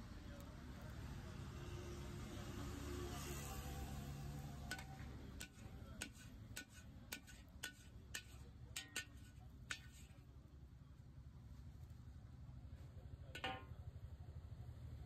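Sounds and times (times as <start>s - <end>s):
metal spatula clinking on wok: 4.6s - 10.2s, 13.4s - 13.8s.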